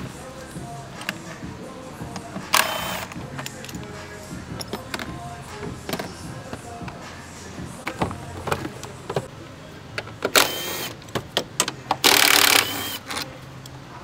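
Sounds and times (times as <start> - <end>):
tools clicking and knocking: 2.1 - 3.9, 4.5 - 5.2.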